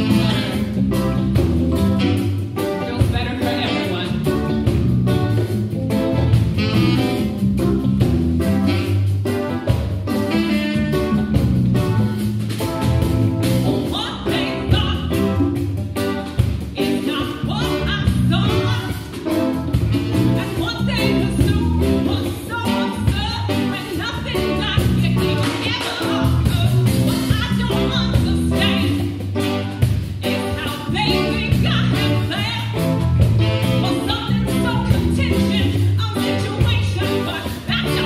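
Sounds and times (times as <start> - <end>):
bass guitar: 0.0 - 38.0
electric guitar: 0.0 - 38.0
steady drum beat: 0.0 - 38.0
woman singing: 2.8 - 4.6, 13.8 - 15.4, 16.7 - 19.2, 20.2 - 29.1, 30.2 - 33.0, 33.6 - 38.0.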